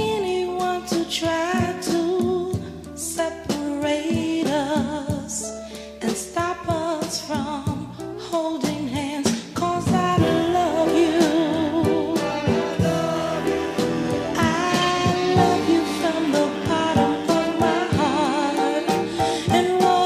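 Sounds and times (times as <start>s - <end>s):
steady drum beat: 8.6s - 20.0s
person singing with vibrato: 8.7s - 20.0s.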